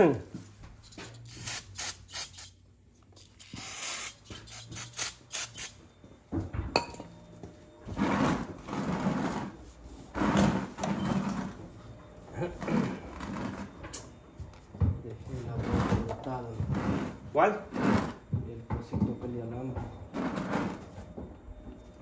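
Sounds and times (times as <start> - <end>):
aerosol spray hissing: 3.5 - 5.7.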